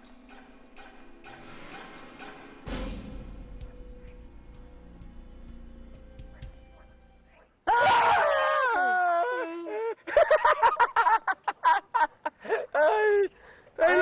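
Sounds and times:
faint music: 0.0 - 10.2
man wailing: 7.7 - 10.0, 12.5 - 14.0.

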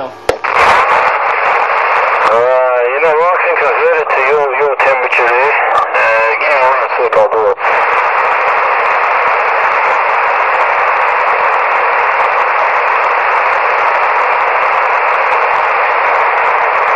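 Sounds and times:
radio static hiss: 0.0 - 16.9.

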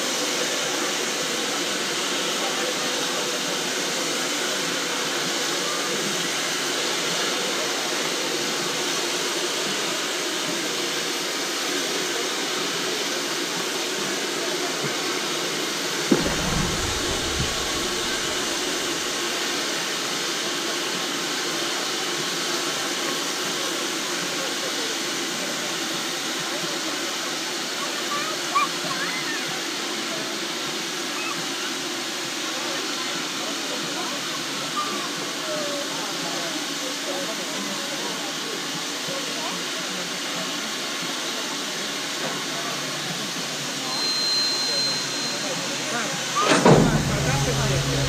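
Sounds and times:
steam hissing from locomotive: 0.0 - 48.0
low rumble: 16.1 - 19.2, 46.5 - 48.0
thump: 16.1 - 19.2, 46.4 - 48.0.

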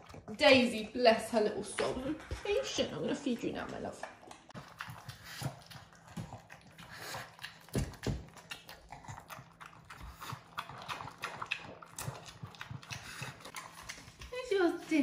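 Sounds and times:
dog chewing and smacking: 0.0 - 1.0, 1.7 - 15.0.

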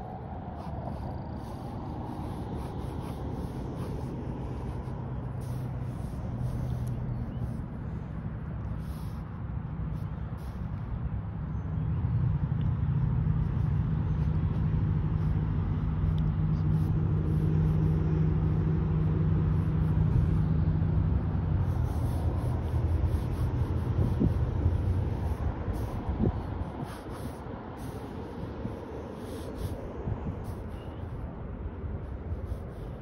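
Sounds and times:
vehicle engine humming: 0.0 - 33.0.

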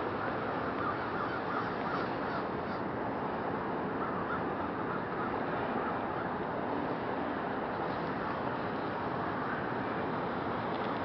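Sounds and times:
flock of crows cawing: 0.1 - 2.9, 4.0 - 6.3.

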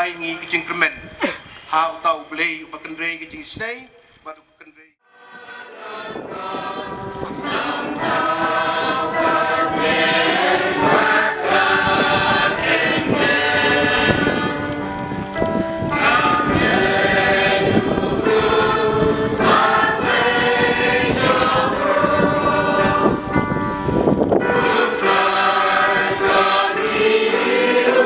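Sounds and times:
choir singing: 5.0 - 14.8, 15.8 - 23.4, 24.3 - 28.0.

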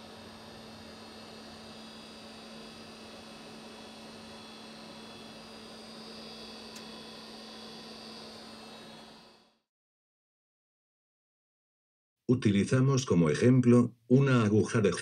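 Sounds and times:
electrical hum: 0.0 - 9.6
brief click: 6.7 - 6.9.

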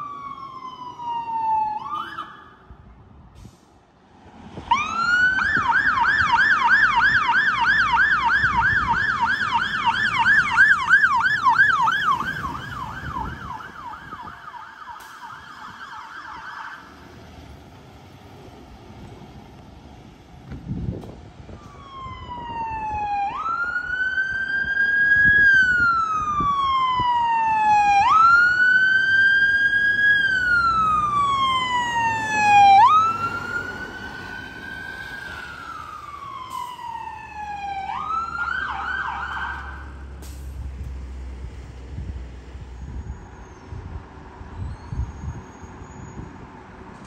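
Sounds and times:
siren yelp: 0.0 - 2.8, 4.7 - 17.0, 21.6 - 40.1
fire engine siren wailing: 0.0 - 2.9, 4.6 - 19.4, 21.4 - 40.9
diesel engine rumbling: 1.8 - 47.0.

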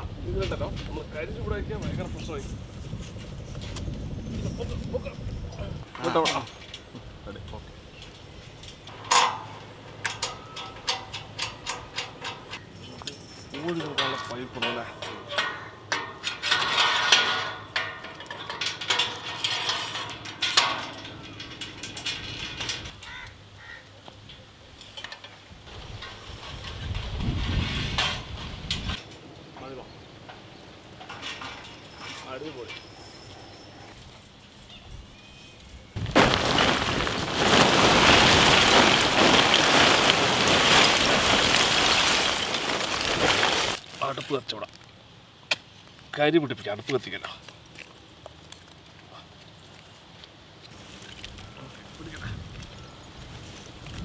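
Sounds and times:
metal pipes scraping on steel frame: 7.9 - 23.0
charcoal lumps clattering: 8.9 - 23.0, 36.0 - 44.8.

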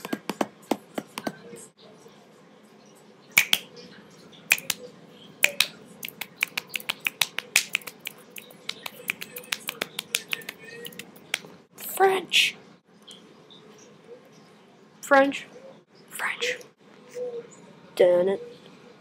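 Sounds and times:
fingers snapping: 3.4 - 3.7, 4.5 - 4.8, 5.4 - 11.5.

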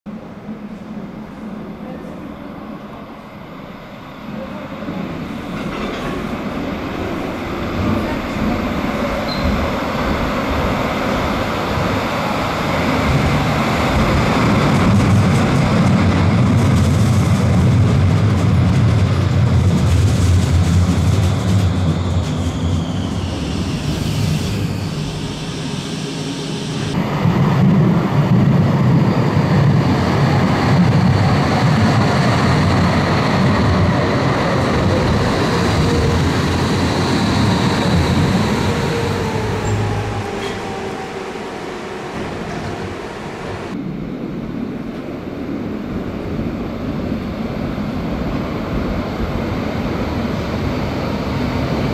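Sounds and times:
tram wheels rumbling on rails: 4.2 - 51.9.

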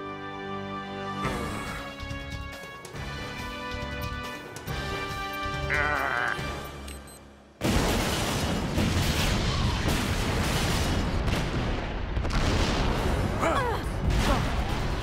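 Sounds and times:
cartoon explosion blast: 7.6 - 15.0.

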